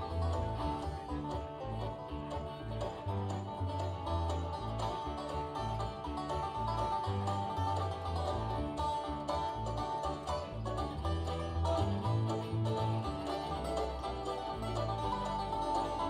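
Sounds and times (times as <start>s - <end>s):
guitars strumming: 0.0s - 16.0s
plucked string lead line: 0.0s - 16.0s
upright bass walking: 0.0s - 16.0s.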